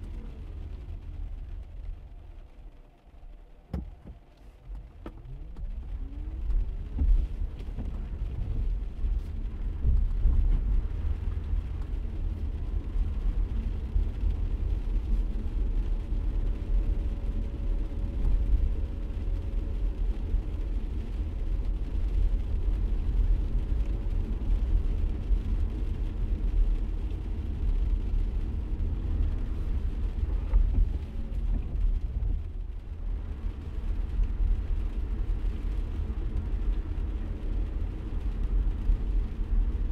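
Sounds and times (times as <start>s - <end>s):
car engine rumble: 0.0s - 39.9s
tyres on wet road: 0.0s - 39.9s.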